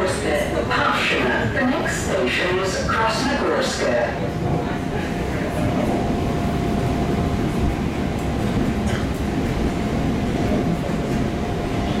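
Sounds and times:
train wheels rumbling: 4.2s - 12.0s.

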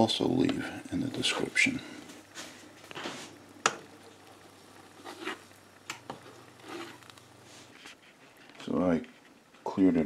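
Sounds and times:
faint steady hum: 0.0s - 10.0s
metal strainer scraping a pot: 5.0s - 5.4s, 6.5s - 7.1s.

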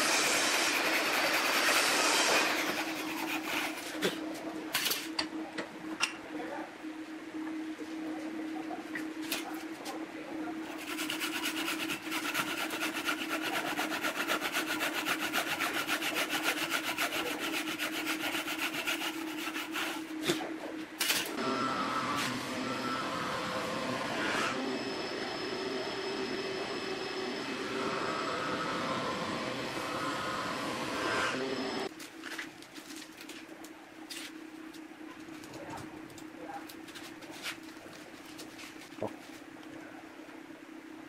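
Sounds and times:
hand saw rasping through wood: 0.0s - 4.2s, 10.8s - 20.1s.

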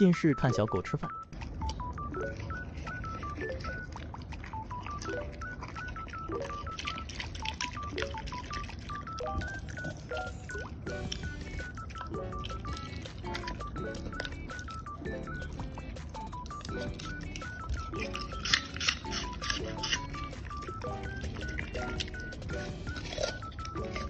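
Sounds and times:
beeping background tune: 0.0s - 24.0s
dog crunching food from metal bowl: 15.6s - 24.0s.

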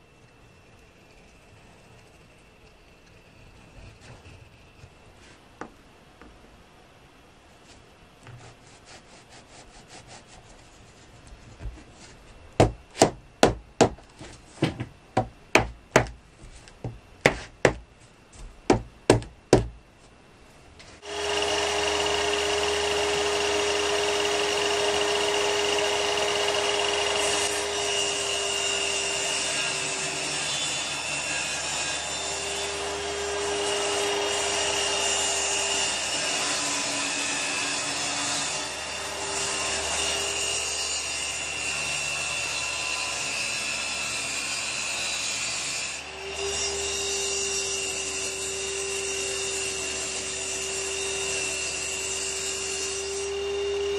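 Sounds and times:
knocks on laminate boards: 12.6s - 16.2s, 16.8s - 17.8s, 18.4s - 19.8s
power saw whining: 21.0s - 43.1s.

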